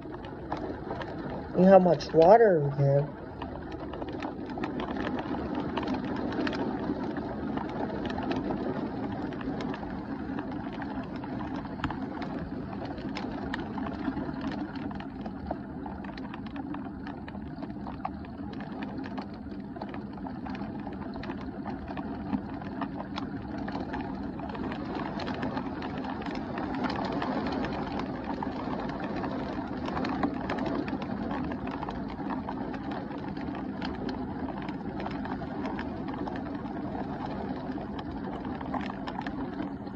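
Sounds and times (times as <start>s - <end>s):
raindrops ticking nearby: 0.0s - 39.9s.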